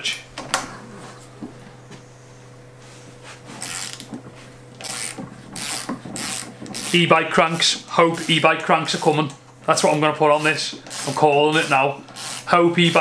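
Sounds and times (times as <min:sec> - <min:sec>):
low hum: 0:00.0 - 0:11.0
wrench rasping bursts: 0:03.6 - 0:04.2, 0:04.8 - 0:13.0.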